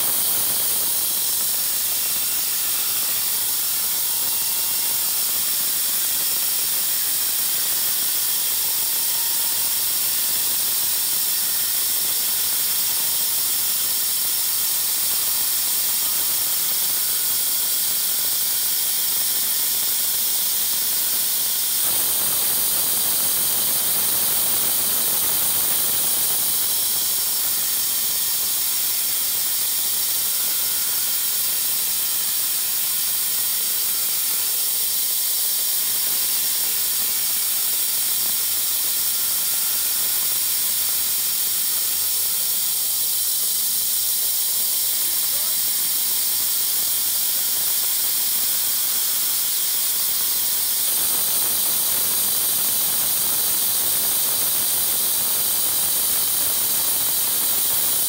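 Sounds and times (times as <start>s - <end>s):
saw blade cutting wood: 0.0s - 11.8s.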